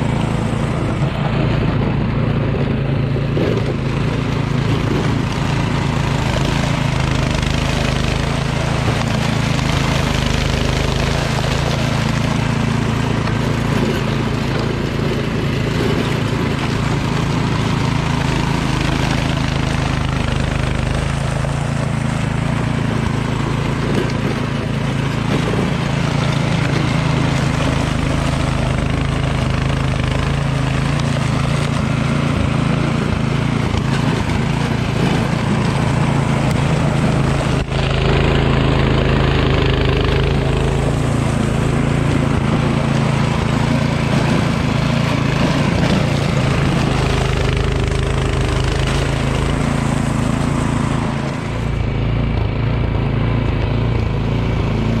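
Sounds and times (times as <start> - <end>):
snowblower engine running: 0.0 - 55.0.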